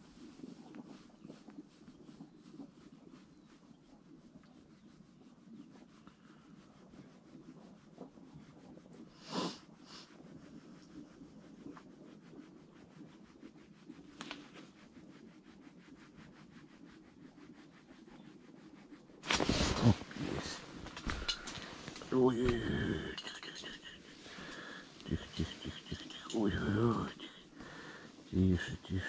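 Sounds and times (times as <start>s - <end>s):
faint rubbing and rustling: 0.0s - 29.0s
brief swish: 19.2s - 21.9s.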